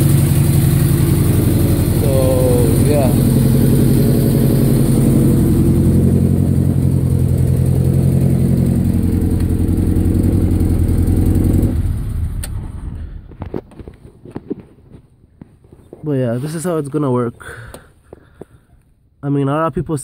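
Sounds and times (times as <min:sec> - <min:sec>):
rough engine idling: 0:00.0 - 0:13.4.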